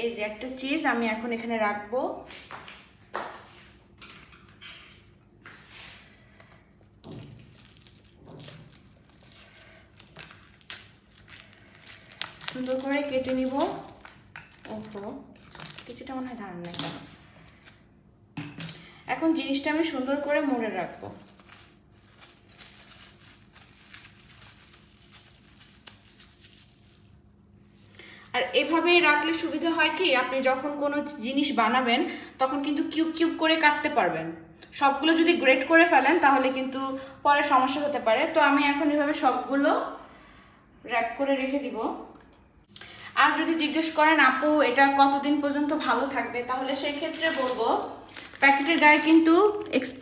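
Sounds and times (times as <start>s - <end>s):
cling film crinkling: 6.3s - 16.1s, 19.4s - 29.3s, 42.8s - 50.0s
scissors cutting film: 7.2s - 17.9s.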